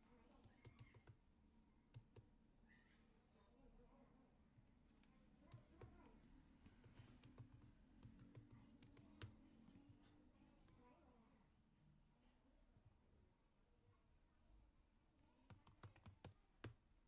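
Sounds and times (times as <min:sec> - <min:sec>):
keyboard typing clicks: 0:00.4 - 0:01.2, 0:06.6 - 0:10.9, 0:15.4 - 0:16.9.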